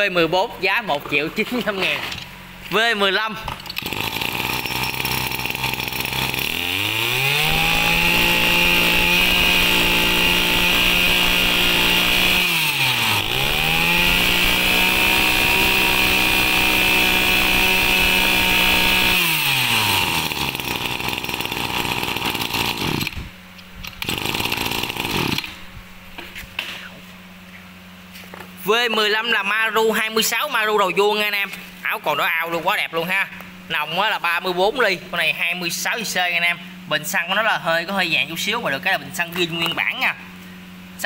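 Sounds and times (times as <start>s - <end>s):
brush cutter engine revving: 3.7s - 23.3s, 23.9s - 25.6s.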